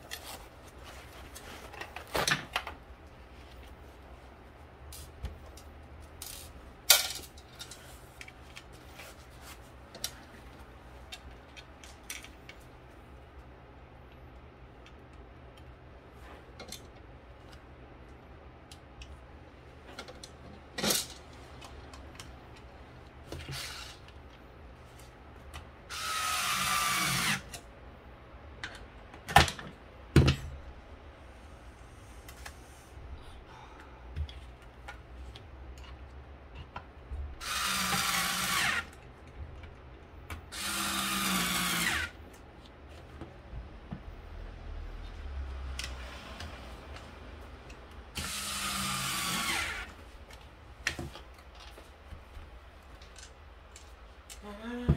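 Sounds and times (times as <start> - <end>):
small power tool running: 25.9 - 27.5, 37.4 - 38.9, 40.5 - 42.2, 48.2 - 49.9.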